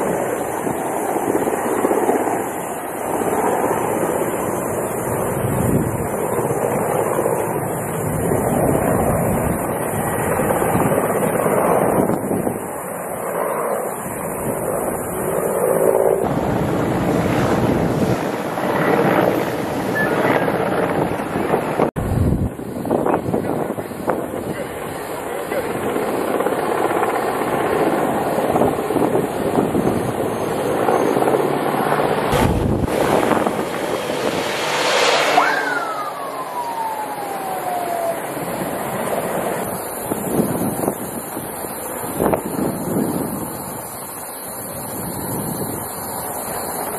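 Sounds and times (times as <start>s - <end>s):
rushing outdoor noise: 0.0s - 46.9s
wind buffeting microphone: 0.0s - 46.9s
fire engine siren wail: 27.5s - 43.7s.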